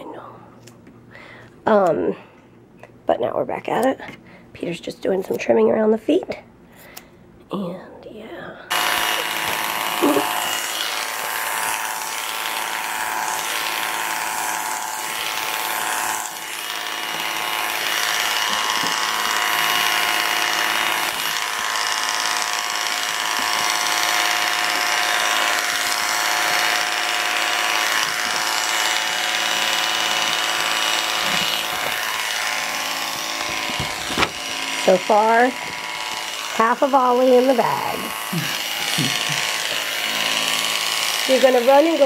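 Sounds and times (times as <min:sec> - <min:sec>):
electric clippers humming: 0:08.7 - 0:42.0.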